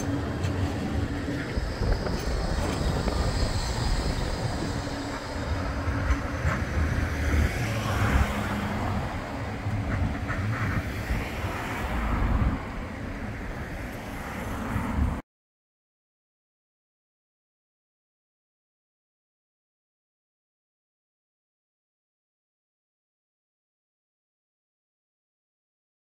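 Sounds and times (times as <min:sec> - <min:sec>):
cars driving past: 0:00.0 - 0:15.2
tram rumbling past: 0:00.0 - 0:15.2.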